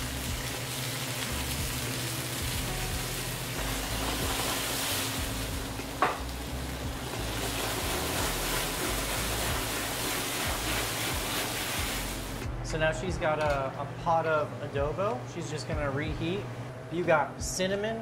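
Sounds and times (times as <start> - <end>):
fish sizzling in frying pan: 0.0 - 12.4
pan flaring up: 7.0 - 12.4.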